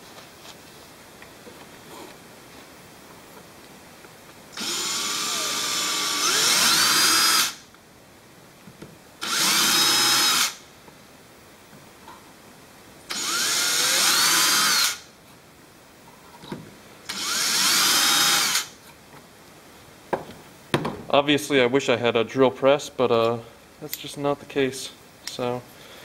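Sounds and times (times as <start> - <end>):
power drill boring: 4.6 - 7.6, 9.2 - 10.6, 13.1 - 15.0, 17.1 - 18.7.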